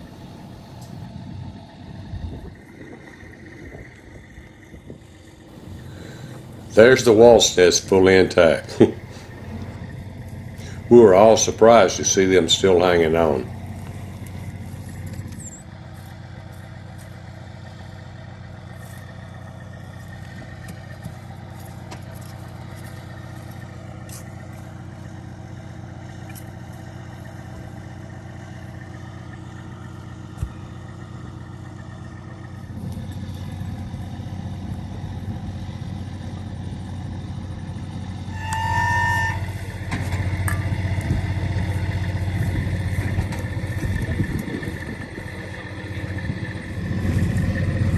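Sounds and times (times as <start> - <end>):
truck diesel engine running: 0.0 - 47.9
brief high tone: 38.3 - 39.8.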